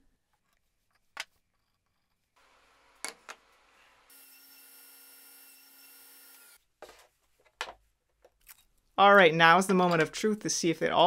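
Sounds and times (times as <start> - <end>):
table saw running: 3.6 - 6.6.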